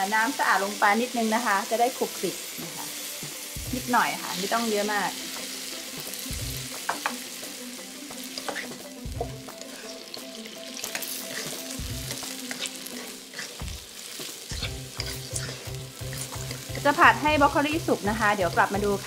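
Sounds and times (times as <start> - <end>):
vegetables sizzling in a wok: 0.0 - 19.0
dull low thumps: 3.6 - 3.9
spatula scraping and tapping pan: 6.8 - 7.2, 8.4 - 10.1, 10.9 - 17.0.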